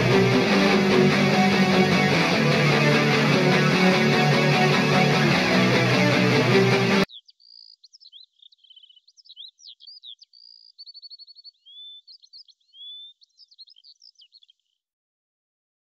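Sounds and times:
music: 0.0 - 7.1
songbird chirping and trilling: 7.0 - 14.8.

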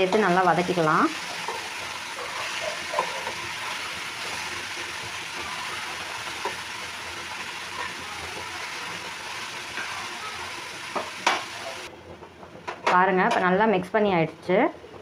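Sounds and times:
metal spoon scraping pan: 0.0 - 4.4
vegetables sizzling in oil: 0.0 - 11.9.

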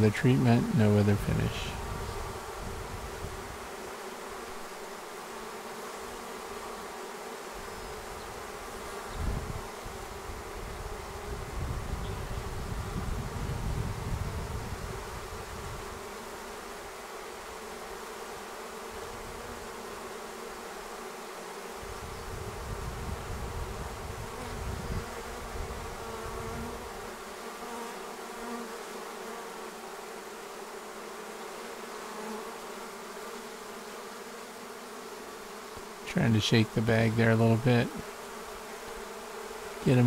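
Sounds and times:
honeybees buzzing: 0.0 - 40.0.

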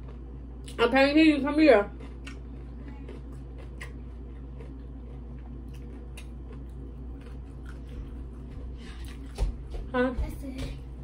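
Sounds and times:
person chewing food: 0.0 - 0.8, 1.9 - 9.7
low hum: 0.0 - 11.0.

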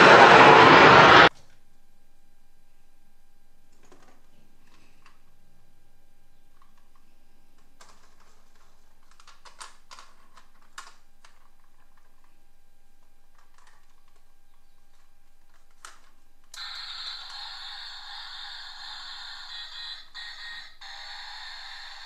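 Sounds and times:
plastic toys clicking and clattering: 7.6 - 12.4, 13.3 - 16.7.

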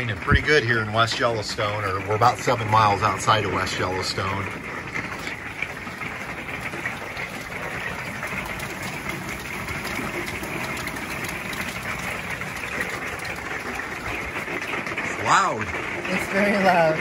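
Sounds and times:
heavy rain and hail on roof: 0.0 - 17.0.

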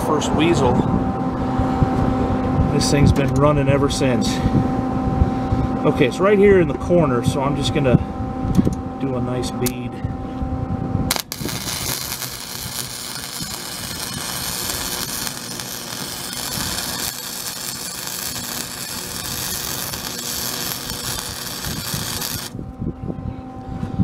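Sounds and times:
welder arc crackling: 11.1 - 22.6.

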